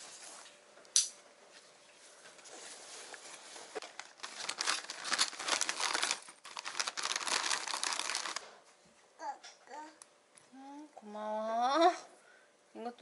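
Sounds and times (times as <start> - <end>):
plastic pouches crinkling: 3.8 - 8.6.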